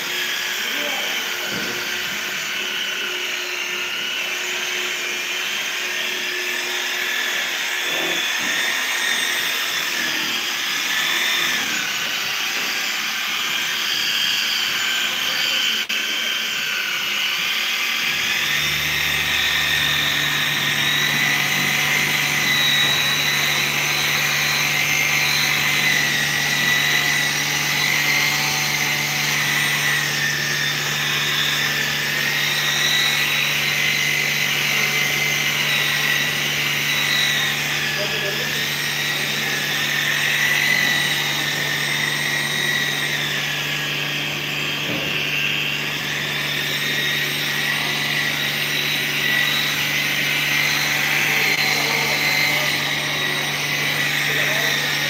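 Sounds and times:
polisher motor whining: 0.0s - 55.0s.

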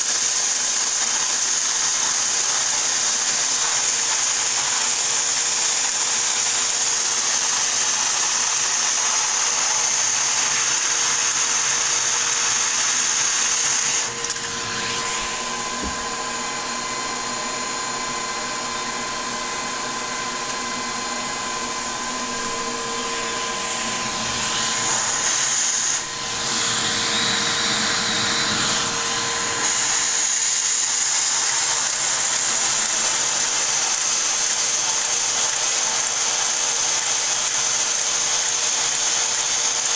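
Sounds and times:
toy motor whirring: 0.0s - 14.4s, 29.6s - 39.9s.

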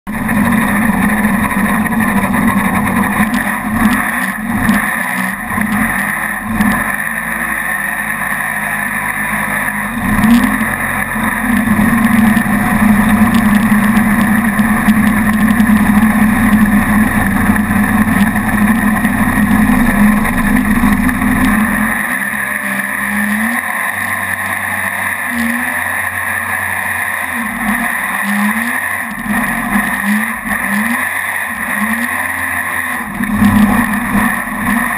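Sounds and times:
boat engine droning: 0.0s - 34.9s
rushing water: 1.0s - 34.9s.

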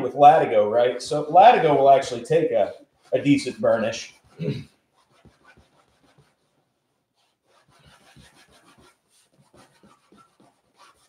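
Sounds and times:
cloth rubbing leather edge: 2.8s - 11.0s.

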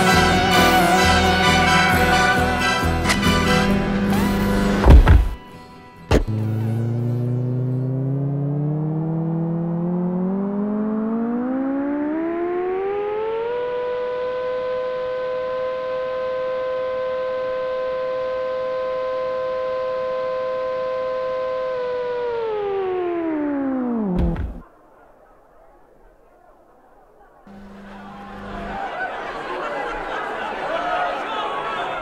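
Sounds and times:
gliding synthesizer tone: 6.3s - 24.6s.

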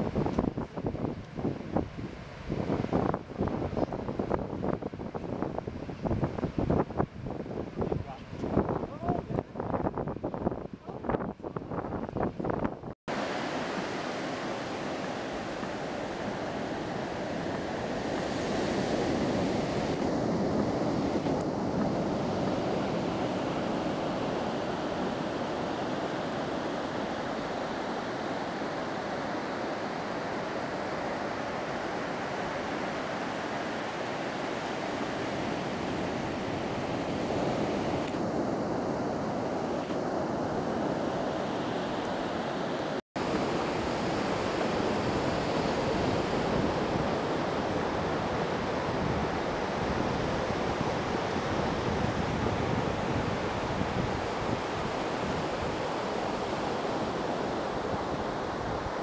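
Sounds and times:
wind noise on microphone: 0.0s - 59.0s
surf: 13.1s - 59.0s.

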